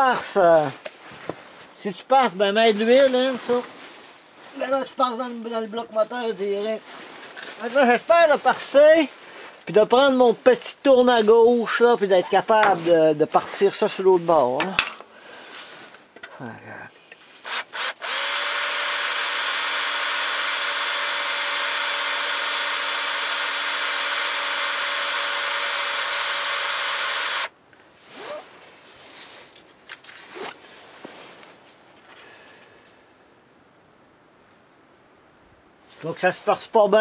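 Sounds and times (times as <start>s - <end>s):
faint handling sounds: 0.0s - 17.4s, 27.7s - 33.0s, 35.8s - 36.6s
cordless drill drilling: 17.4s - 27.5s
drill trigger blips: 17.5s - 27.5s.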